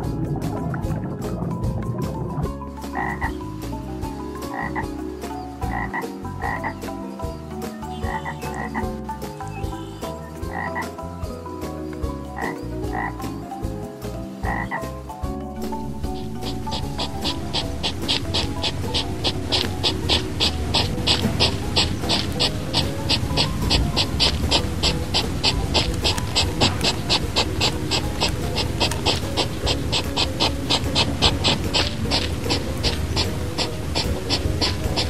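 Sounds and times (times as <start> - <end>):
frogs croaking: 2.6 - 35.0
short higher frog calls: 2.9 - 3.5, 4.5 - 6.9, 7.9 - 11.0, 12.4 - 13.2, 14.4 - 14.9, 15.7 - 35.0.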